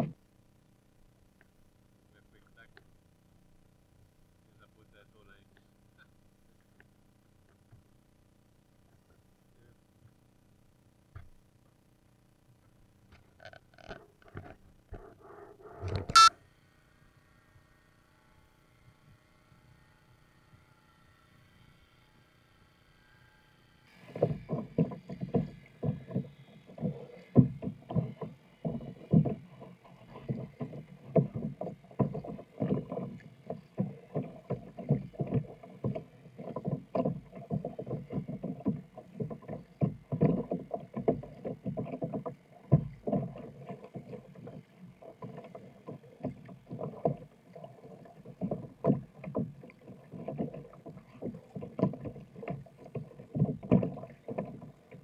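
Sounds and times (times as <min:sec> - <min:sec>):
paddle splashing water: 0:23.9 - 0:55.0.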